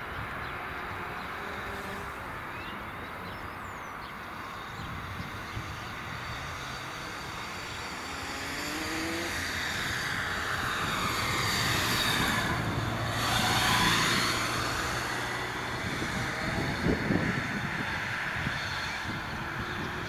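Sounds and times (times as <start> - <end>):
jet engine roar: 6.9 - 20.0
high whining tones sliding in pitch: 7.2 - 17.4
tractor engine low hum: 9.2 - 18.5.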